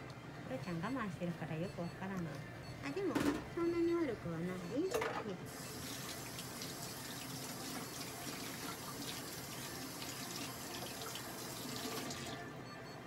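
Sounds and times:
tap water running into sink: 5.5s - 12.4s.

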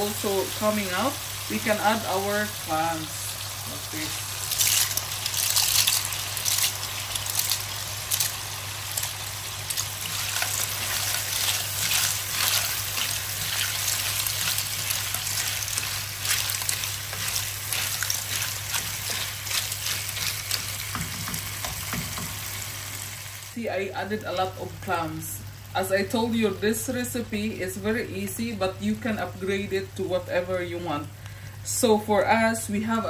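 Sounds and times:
clams sizzling in hot oil: 0.0s - 27.1s
wooden spoon stirring: 9.0s - 22.5s.

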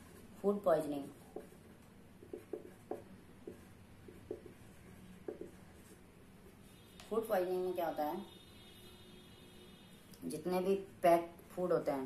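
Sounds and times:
marker pen writing on paper: 0.0s - 7.0s.

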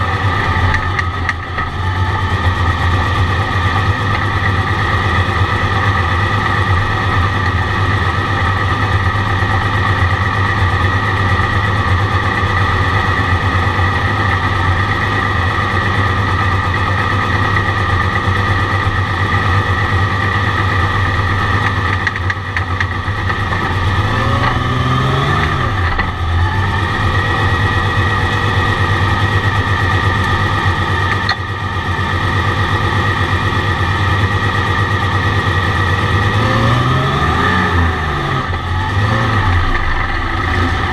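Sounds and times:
high turbo whine: 0.0s - 40.9s
race car engine revving: 23.5s - 29.0s, 36.1s - 40.9s.

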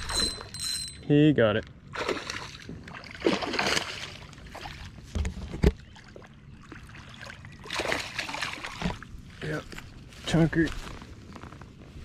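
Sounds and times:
water splashing: 1.9s - 5.1s, 5.8s - 9.6s.

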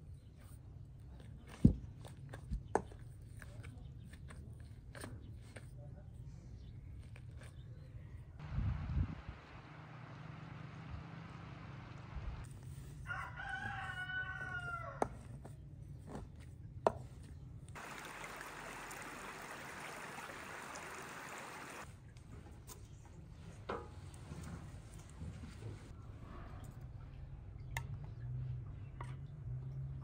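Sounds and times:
rooster crowing: 13.1s - 15.1s.

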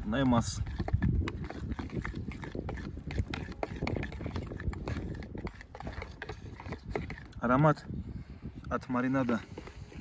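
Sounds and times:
spoon scraping a bowl: 0.0s - 7.8s.

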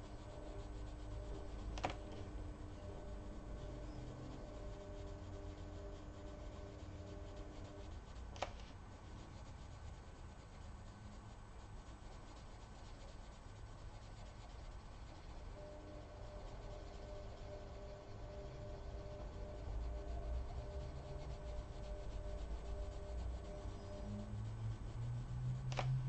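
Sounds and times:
pencil scratching on paper: 0.0s - 26.0s
sharp click: 25.7s - 26.0s.

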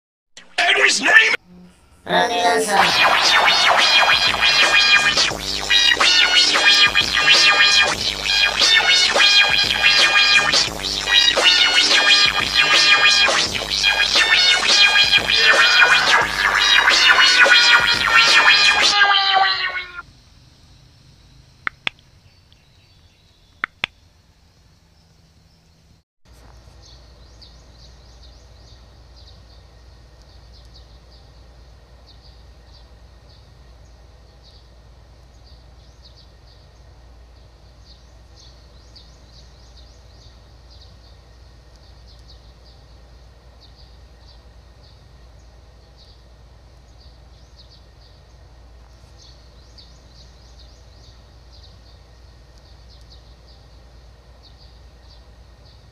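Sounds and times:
sharp clicks: 21.6s - 22.6s, 23.5s - 24.0s.

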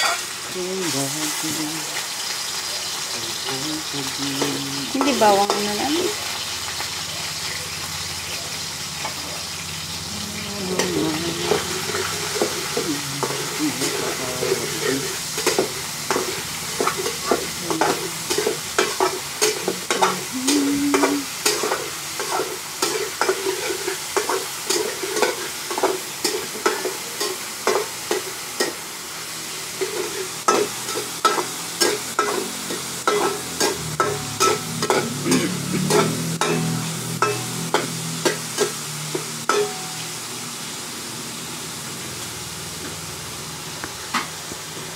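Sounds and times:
food sizzling in oil: 0.0s - 44.9s
metal spatula scraping wok: 9.0s - 20.3s, 20.9s - 28.8s, 29.7s - 39.8s.

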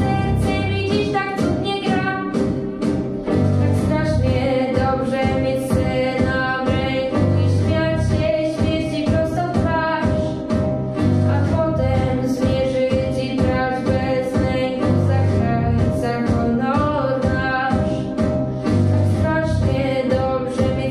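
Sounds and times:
girl singing into a microphone: 0.0s - 2.6s, 3.6s - 10.5s, 11.3s - 18.4s, 19.0s - 20.9s
steady drum beat: 0.0s - 14.5s
bass: 0.0s - 20.9s.

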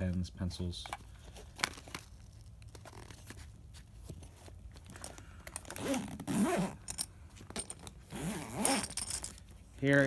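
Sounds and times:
zipper being pulled: 5.6s - 7.0s, 8.0s - 9.3s.

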